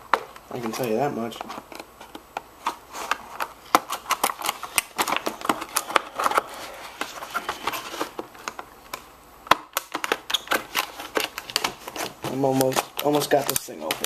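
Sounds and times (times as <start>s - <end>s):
plastic packaging crackling and snapping: 0.0s - 14.0s.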